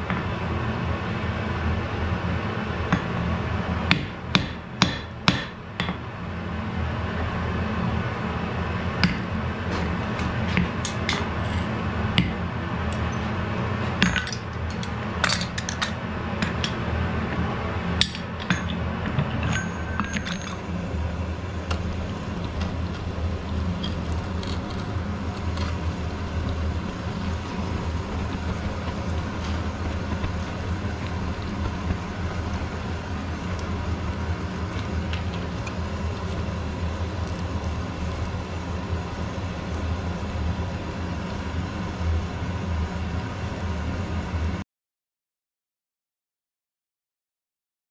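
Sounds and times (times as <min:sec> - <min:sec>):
low hum: 0:06.6 - 0:44.6.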